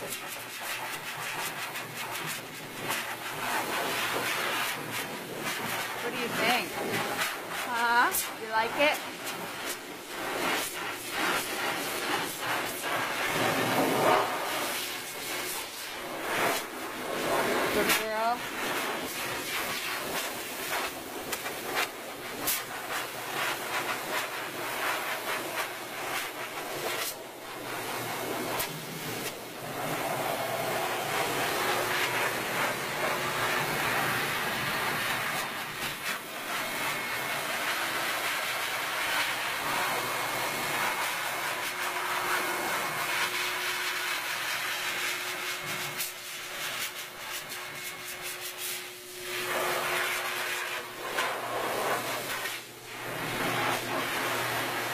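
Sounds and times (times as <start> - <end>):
dog dryer blowing air: 0.0 - 54.9
faint dryer hum: 0.0 - 54.9.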